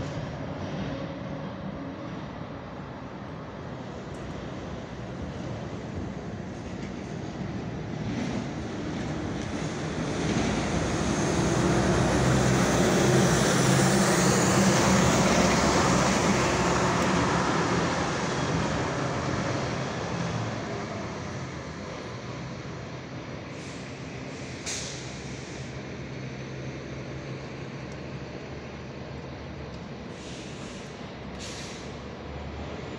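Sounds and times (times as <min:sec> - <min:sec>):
large vehicle passing: 0:03.6 - 0:29.0.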